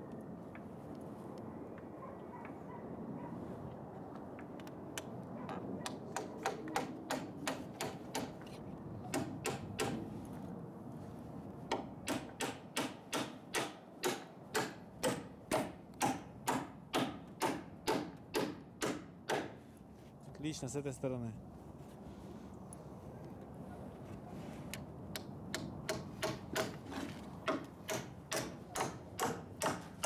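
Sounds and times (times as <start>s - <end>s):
hammer striking nail into wood: 5.9s - 8.4s, 9.1s - 10.0s, 11.7s - 19.6s, 25.2s - 26.8s, 27.4s - 30.0s.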